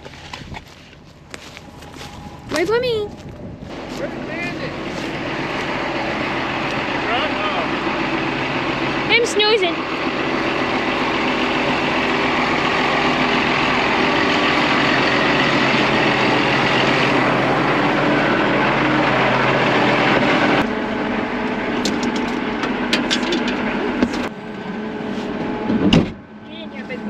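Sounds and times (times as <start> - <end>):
tractor diesel engine running: 0.0 - 27.0
muffled engine drone inside cab: 18.7 - 27.0.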